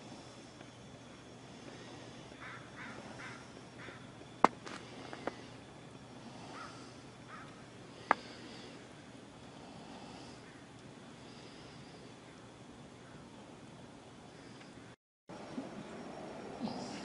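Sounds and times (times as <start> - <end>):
crow cawing: 2.4 - 4.1, 6.5 - 7.6.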